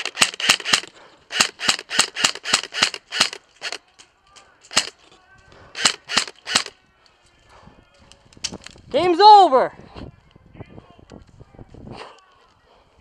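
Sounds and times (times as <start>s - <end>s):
airsoft guns firing: 0.0s - 3.8s, 4.7s - 4.9s, 5.8s - 6.7s.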